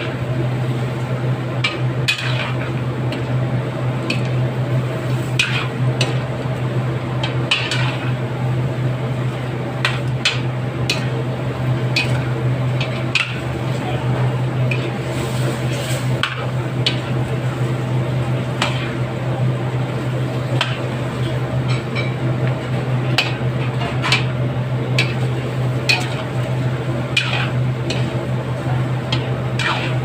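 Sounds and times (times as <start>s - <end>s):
steady low hum: 0.0s - 30.0s
metal spatula scraping a wok: 5.3s - 5.8s, 7.5s - 8.2s, 27.1s - 28.2s, 29.5s - 30.0s.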